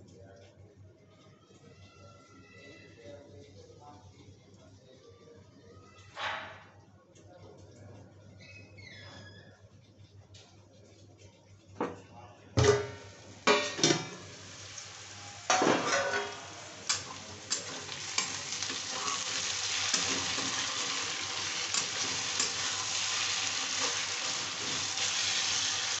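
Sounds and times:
onions sizzling in oil: 13.0s - 26.0s
metal clang: 15.5s - 18.3s
spatula scraping a pan: 15.5s - 26.0s.

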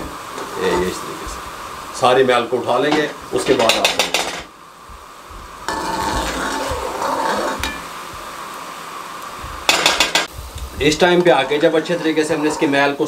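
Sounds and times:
syrup boiling and bubbling: 0.0s - 13.0s.

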